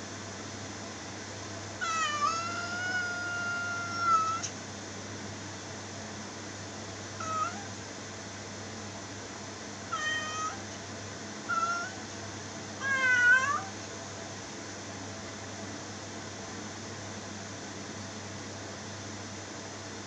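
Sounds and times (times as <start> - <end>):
cat meowing: 1.8 - 4.5, 7.2 - 7.7, 9.9 - 10.6, 11.5 - 12.0, 12.8 - 13.8.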